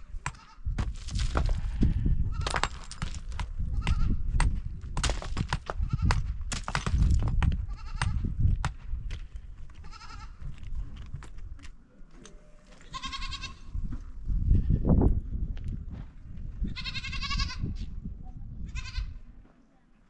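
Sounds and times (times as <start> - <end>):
goats bleating: 12.8 - 13.6.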